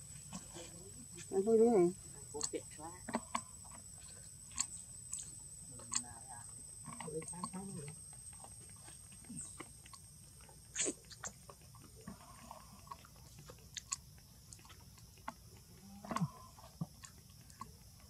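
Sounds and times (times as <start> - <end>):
faint high steady tone: 0.0 - 10.4.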